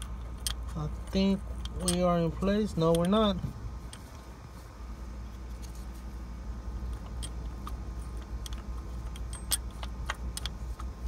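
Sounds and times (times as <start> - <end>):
metal clicks and taps: 0.0 - 3.3, 6.9 - 11.0
steady low hum: 0.0 - 11.0.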